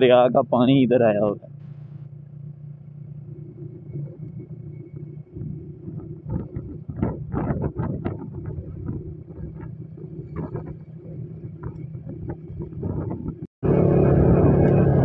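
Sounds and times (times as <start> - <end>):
motorcycle engine running: 0.0 - 15.0
wind buffeting microphone: 5.1 - 15.0.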